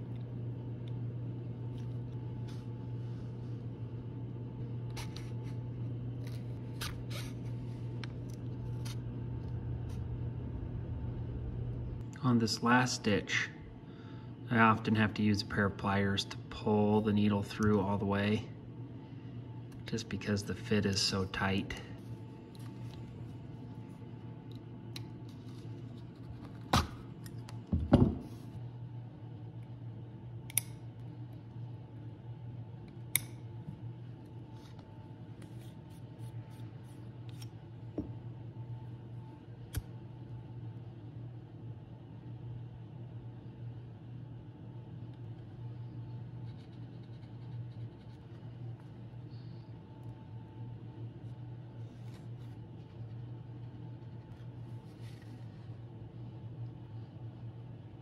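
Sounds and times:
steady low hum: 0.0 - 58.0
scissors snipping: 33.1 - 33.4.

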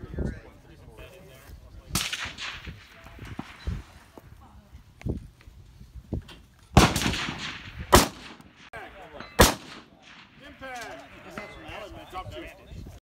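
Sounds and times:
loud rifle shots: 2.0 - 4.0, 6.8 - 8.8, 9.4 - 11.3
rolling echo: 2.0 - 4.3, 6.8 - 12.0.

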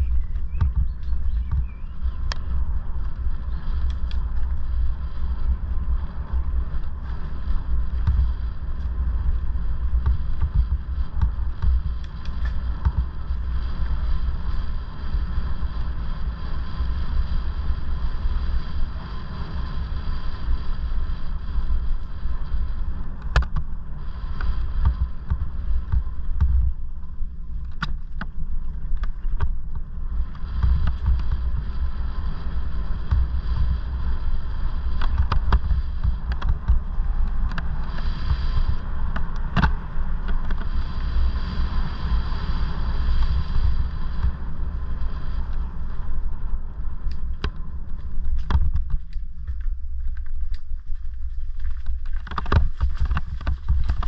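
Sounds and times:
bike knocks and rattles: 0.0 - 3.8, 6.7 - 14.1, 24.4 - 31.7, 32.4 - 34.0, 34.7 - 40.7, 48.3 - 49.6, 51.5 - 54.0
wind rumble on microphone: 0.0 - 54.0.

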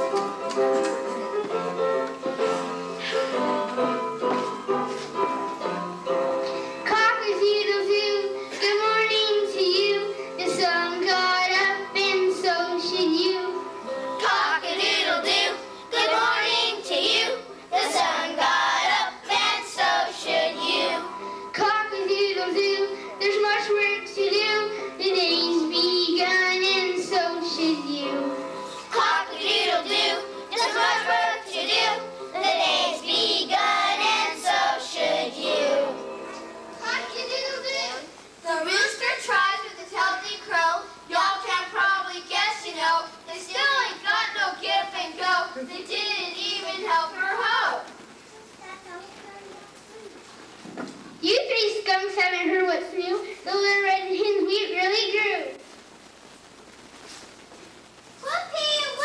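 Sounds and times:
musical accompaniment: 0.0 - 38.6
child singing into microphone: 6.8 - 13.6, 14.2 - 36.0, 36.8 - 50.2.

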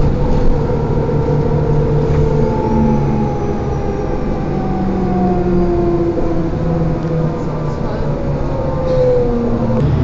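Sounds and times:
engine and drivetrain hum: 0.0 - 10.0
road rumble: 0.0 - 10.0
whine falling in pitch: 9.8 - 10.0.

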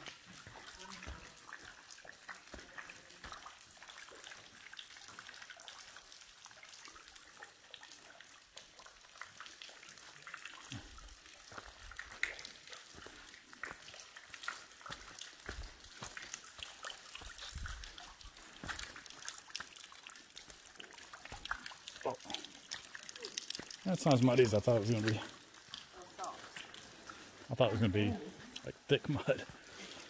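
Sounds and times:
water dripping onto wet ground: 0.0 - 30.0.

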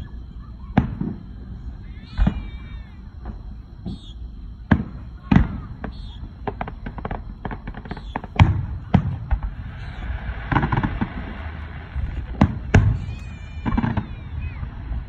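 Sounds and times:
firework booms: 0.7 - 1.5, 2.1 - 4.0, 4.6 - 15.0
firework crackling pops: 4.7 - 15.0.

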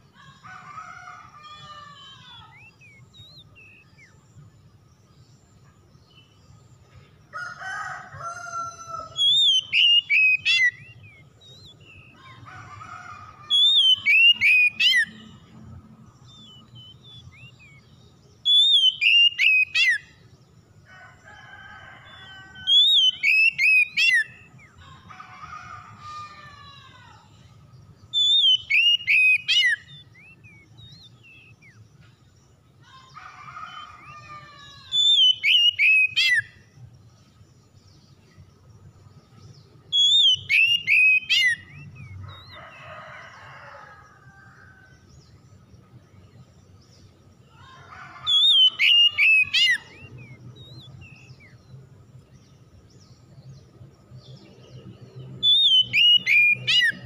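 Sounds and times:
magpie-robin singing: 1.5 - 4.2, 8.4 - 12.5, 13.4 - 15.4, 16.2 - 20.3, 22.6 - 24.8, 28.0 - 31.8, 33.8 - 36.6, 39.8 - 42.8, 48.1 - 51.6, 55.4 - 57.0.

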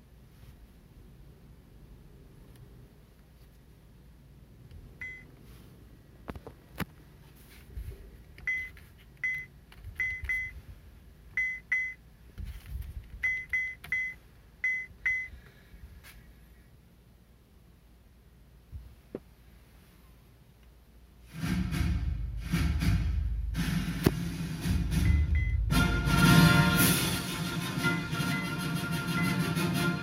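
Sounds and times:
short high beeps: 25.0 - 25.6.

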